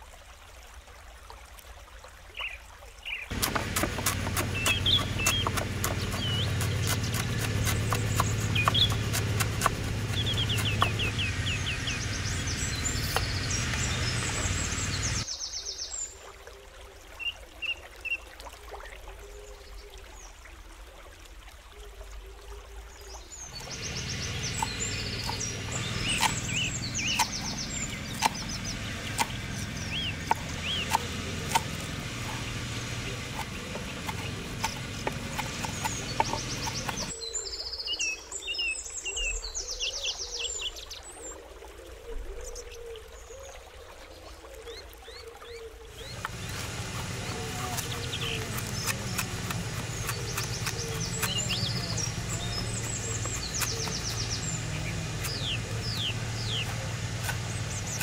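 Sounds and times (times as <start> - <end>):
birds chirping: 2.3 - 16.2, 23.0 - 58.0
sharp knocks: 3.3 - 11.1.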